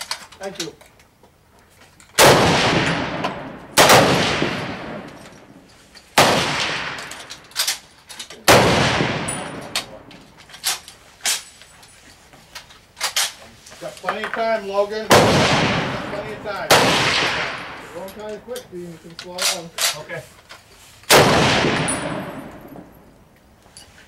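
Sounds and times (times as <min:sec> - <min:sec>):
rifle shots with echo: 0:02.2 - 0:05.2, 0:06.2 - 0:07.2, 0:08.5 - 0:10.1, 0:15.1 - 0:17.9, 0:21.1 - 0:23.0.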